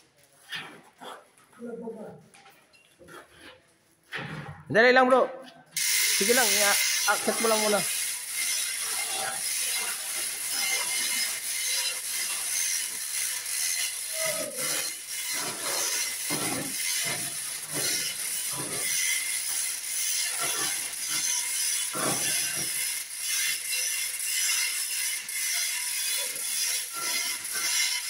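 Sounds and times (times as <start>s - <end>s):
chain clanking and rattling: 5.8s - 28.0s
chain hoist ratcheting: 5.8s - 28.0s.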